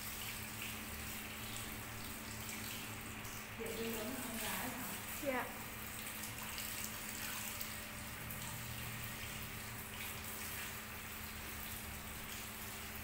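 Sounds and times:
shower sprayer running: 0:00.0 - 0:13.0.

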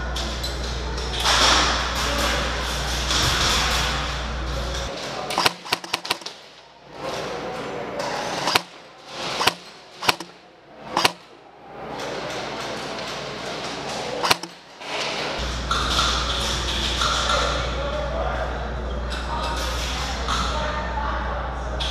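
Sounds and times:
steady background din: 0:00.0 - 0:21.9
airsoft guns firing: 0:05.3 - 0:06.5, 0:08.4 - 0:11.3, 0:14.2 - 0:14.7.

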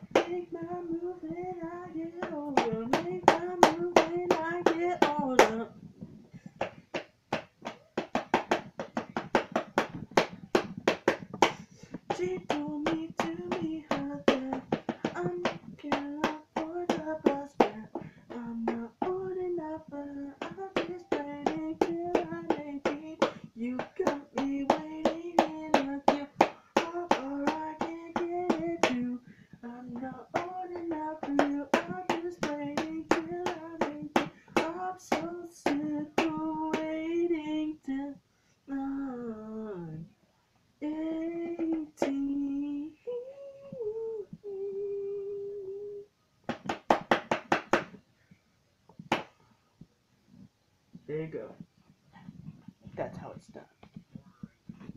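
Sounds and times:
hands drumming on a surface: 0:00.0 - 0:05.6, 0:06.4 - 0:37.2, 0:41.4 - 0:42.6, 0:46.5 - 0:48.0, 0:49.0 - 0:49.4, 0:53.8 - 0:54.9.

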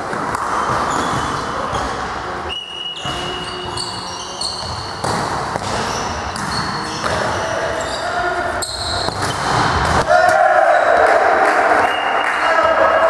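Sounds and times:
shoe squeaks: 0:00.6 - 0:09.4
volleyball thudding: 0:04.6 - 0:07.3.

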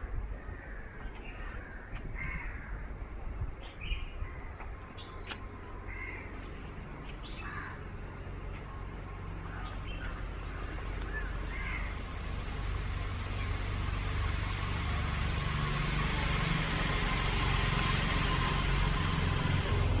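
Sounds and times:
steady low rumble: 0:00.0 - 0:20.0
crows cawing: 0:00.4 - 0:02.9, 0:05.9 - 0:06.3, 0:07.4 - 0:07.9, 0:09.5 - 0:11.9.

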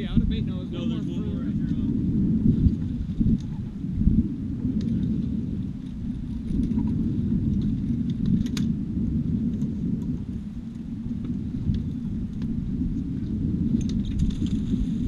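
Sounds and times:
wind buffeting microphone: 0:00.0 - 0:15.0
fishing tackle clicks and knocks: 0:05.8 - 0:08.7, 0:13.7 - 0:14.7.

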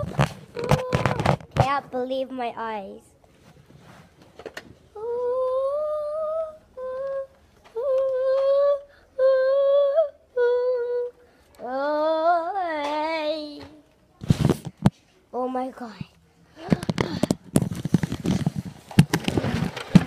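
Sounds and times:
child humming: 0:05.0 - 0:13.4.

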